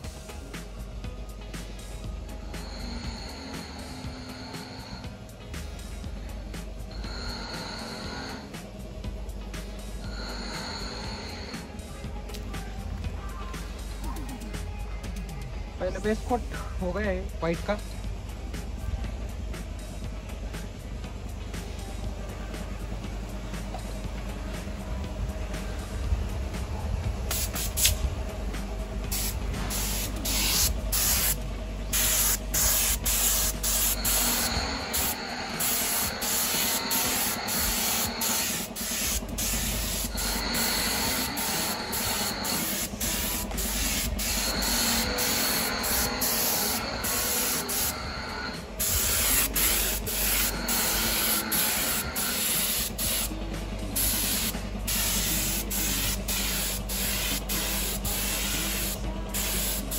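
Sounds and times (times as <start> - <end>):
low steady hum: 0.0 - 59.9
paint spray gun hissing: 27.2 - 28.1, 29.0 - 59.9.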